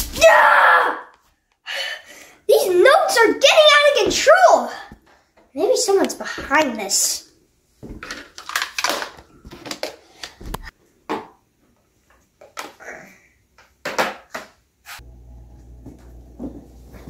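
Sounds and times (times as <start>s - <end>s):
knocks and rustles of handling: 7.8s - 12.8s.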